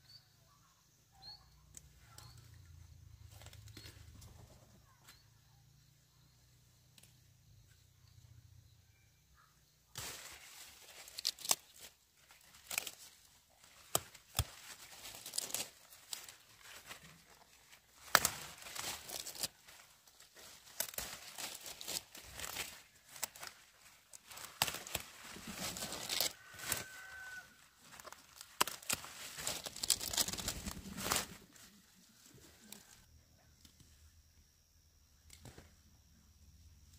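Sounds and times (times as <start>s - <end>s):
leafy vegetables tearing and rustling: 10.0s - 31.8s.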